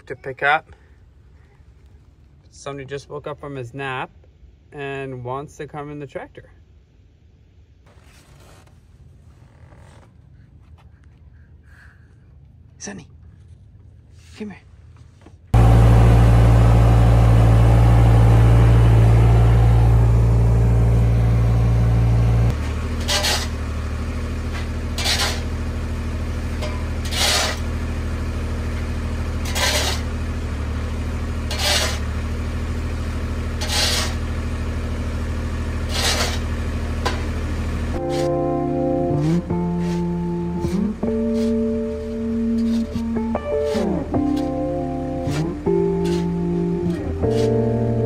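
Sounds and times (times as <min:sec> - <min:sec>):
diesel engine running: 0:15.6 - 0:48.0
shovel scraping wood chips: 0:18.3 - 0:28.1, 0:28.7 - 0:30.3, 0:31.4 - 0:32.2, 0:33.4 - 0:34.5, 0:35.7 - 0:37.4, 0:38.0 - 0:48.0.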